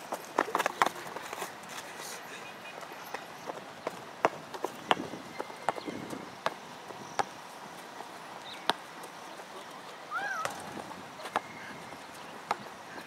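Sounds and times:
basketball bouncing on concrete: 0:10.4 - 0:11.6.

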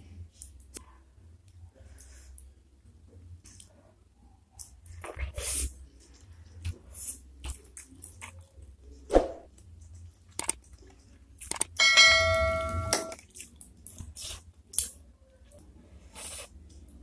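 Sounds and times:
chewing and mouth clicks: 0:07.4 - 0:08.8, 0:09.6 - 0:11.8, 0:13.2 - 0:15.0
bowl ringing: 0:11.8 - 0:13.2.

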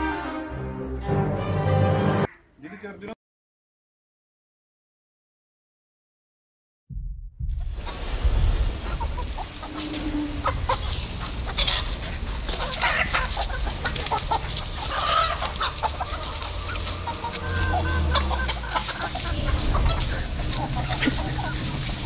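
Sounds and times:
chickens clucking: 0:07.9 - 0:22.0
chicken squawk: 0:08.8 - 0:22.0.

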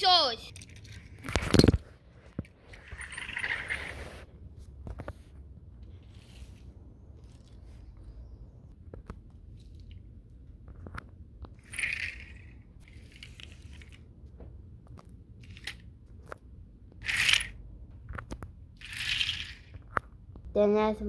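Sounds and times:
rustling scrapes on rug: 0:03.4 - 0:04.3, 0:05.0 - 0:08.0.

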